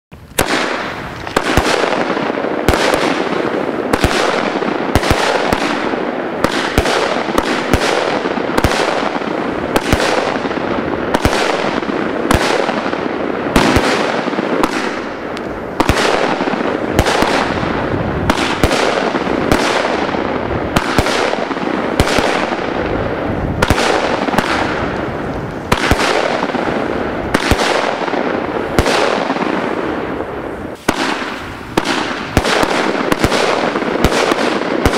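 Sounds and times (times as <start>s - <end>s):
firework launch pops: 0.3s - 2.1s, 30.7s - 34.9s
firework shells bursting: 0.3s - 34.9s.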